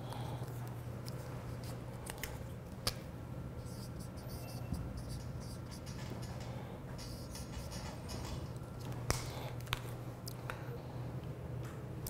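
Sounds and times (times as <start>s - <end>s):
marker scratching on whiteboard: 3.6s - 6.0s.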